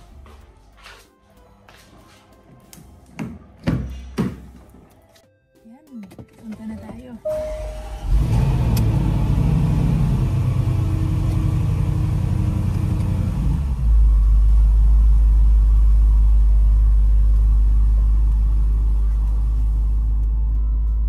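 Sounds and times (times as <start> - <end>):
car engine running: 7.3 - 21.0
low rumble of moving car: 7.3 - 21.0.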